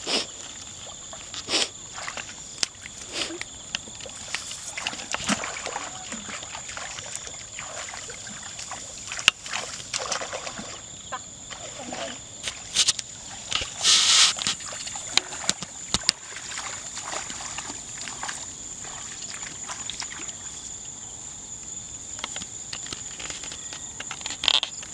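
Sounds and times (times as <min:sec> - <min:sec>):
field insects droning: 0:00.0 - 0:24.9
rustling through tall plants: 0:12.4 - 0:15.0.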